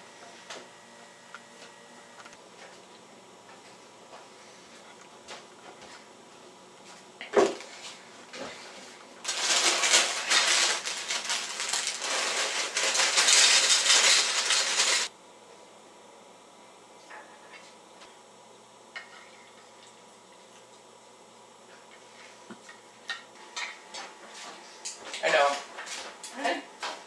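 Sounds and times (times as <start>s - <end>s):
dry cereal poured into bowl: 9.3s - 15.1s.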